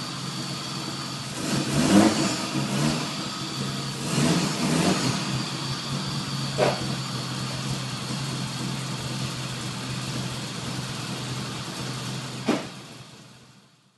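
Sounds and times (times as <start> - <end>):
car engine idling: 0.0 - 13.9.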